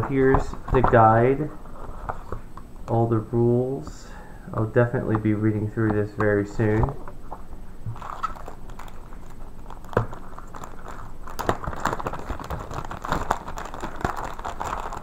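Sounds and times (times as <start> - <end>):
plastic bag crinkling: 7.8 - 15.0.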